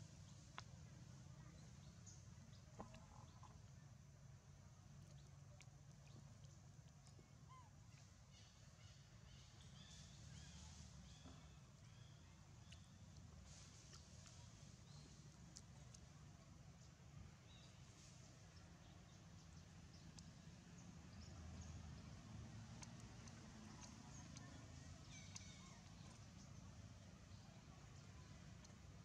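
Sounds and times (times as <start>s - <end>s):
soft ticks: 0.2s - 0.8s, 5.0s - 7.2s, 12.6s - 16.1s, 19.5s - 29.0s
faint high chirps: 5.0s - 16.1s, 17.4s - 28.9s.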